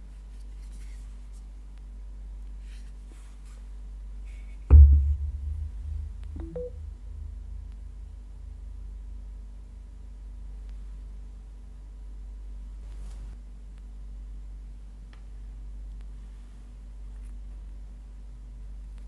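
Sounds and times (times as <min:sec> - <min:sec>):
short faint tones: 0:04.7 - 0:07.1.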